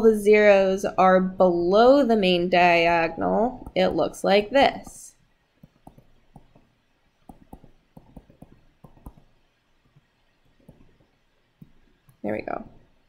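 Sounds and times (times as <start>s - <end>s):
stylus tapping on tablet screen: 3.6s - 13.0s.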